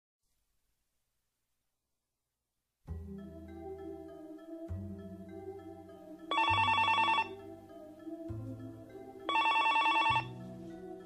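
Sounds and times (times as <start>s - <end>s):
soft background music: 2.9s - 11.0s
telephone ringing: 6.3s - 7.4s, 9.2s - 10.4s.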